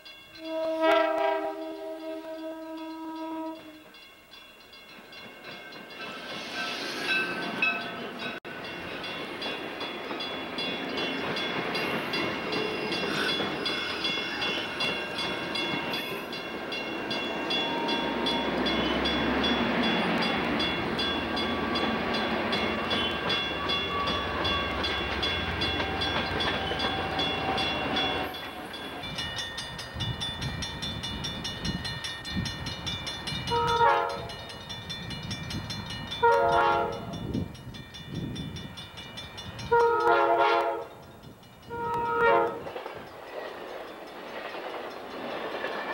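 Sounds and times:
train wheels rumbling on rails: 0.0s - 45.9s
locomotive horn blasts: 0.4s - 4.0s, 33.5s - 34.3s, 36.2s - 37.1s, 39.7s - 41.0s, 41.7s - 42.7s.

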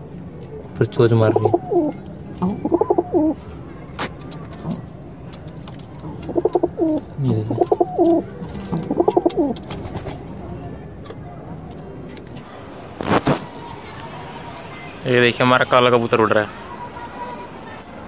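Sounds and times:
pigeon cooing: 0.8s - 10.5s.

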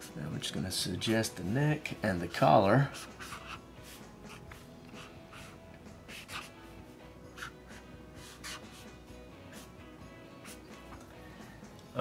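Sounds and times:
faint background music: 0.0s - 12.0s
marker pen scratching on paper: 2.9s - 6.7s, 7.3s - 9.8s, 10.4s - 11.0s.

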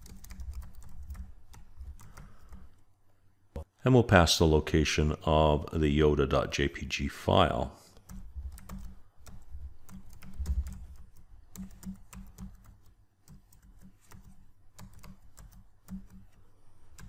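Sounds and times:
computer keyboard typing: 0.0s - 2.8s, 8.0s - 17.0s.

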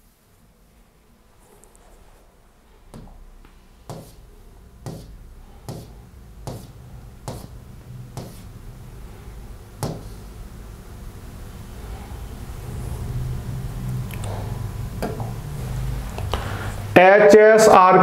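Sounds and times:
low steady hum: 0.0s - 18.0s
sharp taps: 4.9s - 5.1s, 9.8s - 10.1s.

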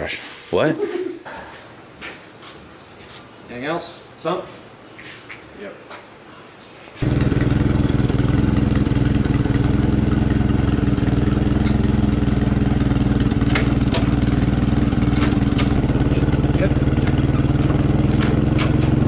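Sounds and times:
forklift engine running: 7.0s - 19.0s.

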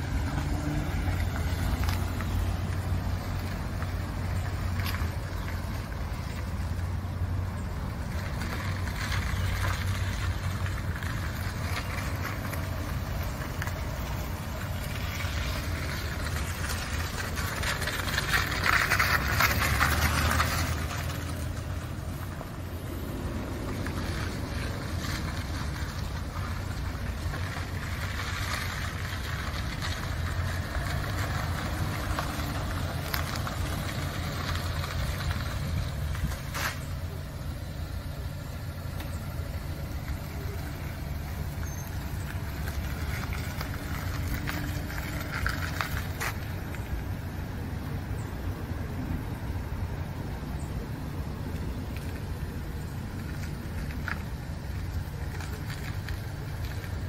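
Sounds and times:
small truck engine running: 0.0s - 57.0s
tyres on asphalt: 0.0s - 57.0s.

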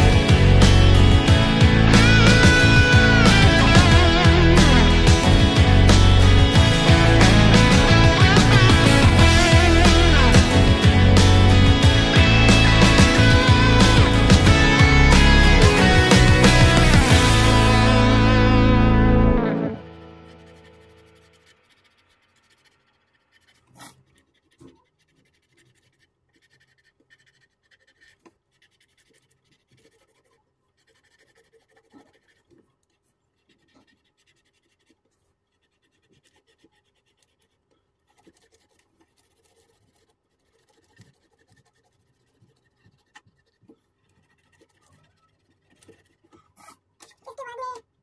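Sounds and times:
pencil scratching on paper: 19.8s - 46.9s.

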